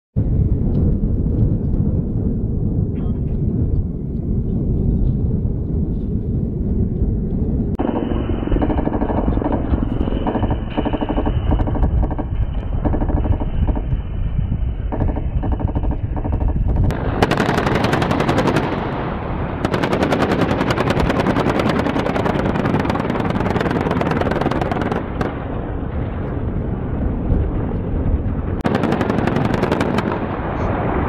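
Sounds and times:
helicopter rotor and engine: 0:07.0 - 0:18.9, 0:19.6 - 0:26.5
automatic gunfire: 0:07.8 - 0:13.9, 0:14.9 - 0:18.9, 0:19.6 - 0:25.3, 0:28.6 - 0:30.3.

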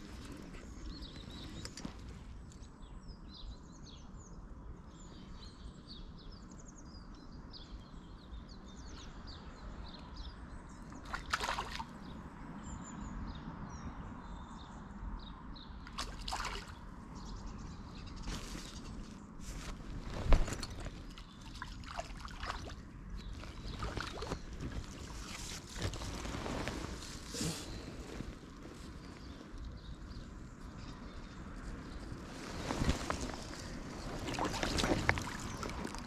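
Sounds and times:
songbirds chirping: 0:00.0 - 0:36.0
small river running: 0:10.8 - 0:12.5, 0:15.8 - 0:17.3, 0:18.2 - 0:30.8, 0:31.4 - 0:36.0
water splashes: 0:11.0 - 0:12.0, 0:15.9 - 0:16.9, 0:20.0 - 0:25.6, 0:32.6 - 0:36.0.

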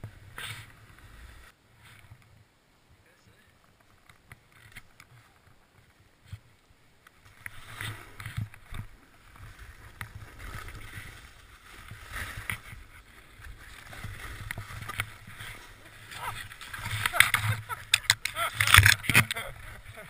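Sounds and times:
snowboard scraping through snow: 0:00.1 - 0:01.9, 0:07.5 - 0:20.0.

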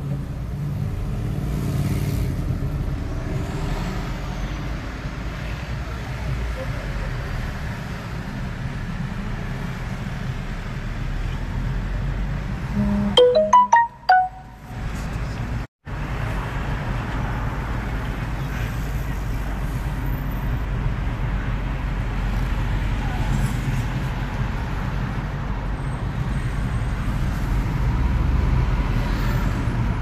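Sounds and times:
road noise inside vehicle: 0:00.0 - 0:30.0
electronic phone jingle: 0:12.8 - 0:14.7.

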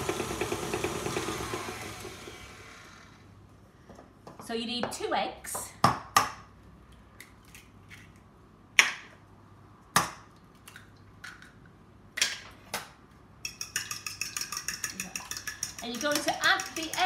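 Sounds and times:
fork beating eggs in bowl: 0:13.4 - 0:17.0.

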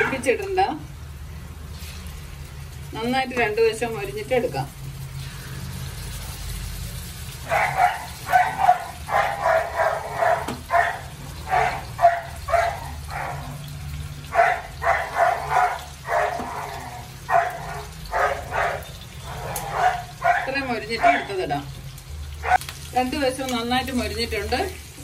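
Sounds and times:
dog barking: 0:07.4 - 0:13.6, 0:14.3 - 0:21.4, 0:22.4 - 0:22.6.

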